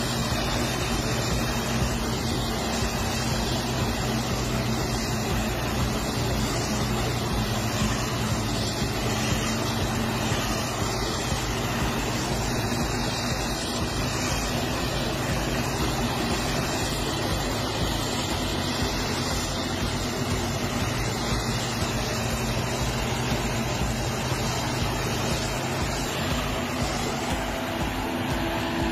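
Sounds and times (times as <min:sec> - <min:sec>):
harvester engine drone: 0:00.0 - 0:28.9
rushing of chopped crop blowing: 0:00.0 - 0:28.9.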